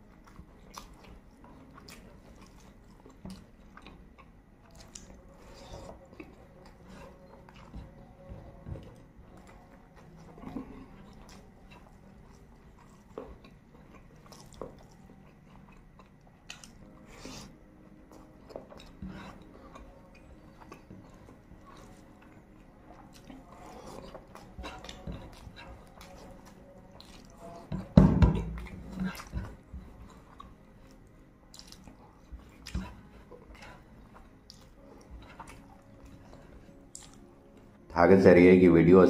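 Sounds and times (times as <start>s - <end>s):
person chewing: 0.0s - 37.9s
wet mouth clicks and smacks: 36.9s - 37.2s.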